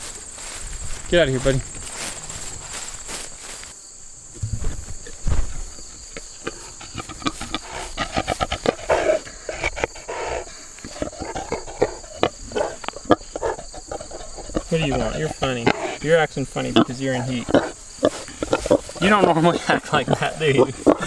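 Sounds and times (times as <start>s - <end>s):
high insect chirr: 0.0s - 21.0s
rustling and knocks: 4.3s - 6.3s
pig grunting and snuffling: 6.1s - 21.0s.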